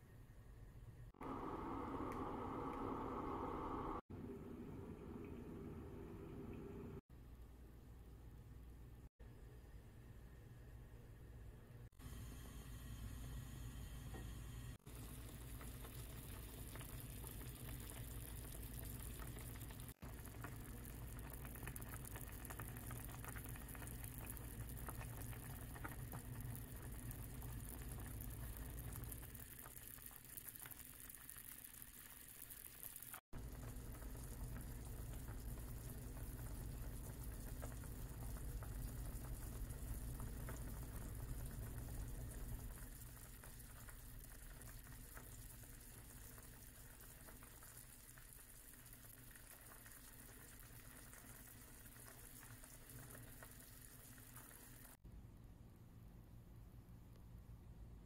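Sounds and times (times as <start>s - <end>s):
low steady hum: 0.0s - 29.4s, 49.4s - 58.0s
stew bubbling in a saucepan: 1.2s - 7.0s, 12.0s - 55.0s.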